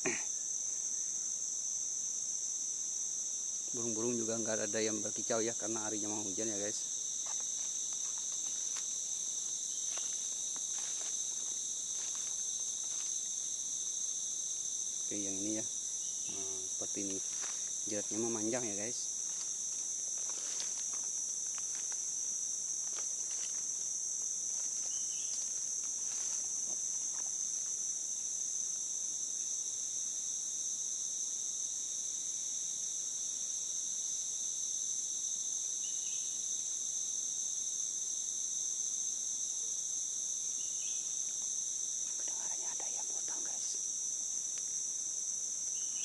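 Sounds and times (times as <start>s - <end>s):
insect chorus: 0.0s - 46.0s
footsteps rustling through undergrowth: 7.2s - 14.0s, 17.0s - 17.8s, 19.1s - 27.8s.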